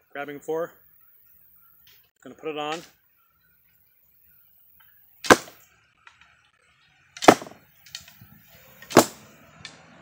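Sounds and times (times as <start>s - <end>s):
bowstring shots: 5.2s - 5.7s, 7.2s - 8.2s, 8.8s - 9.3s.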